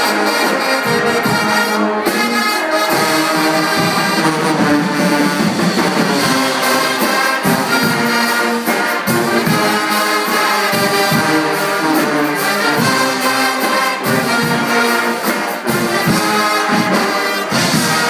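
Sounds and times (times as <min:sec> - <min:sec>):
bass and snare drums beating: 0:00.0 - 0:18.0
brass band playing loud tune: 0:00.0 - 0:18.0.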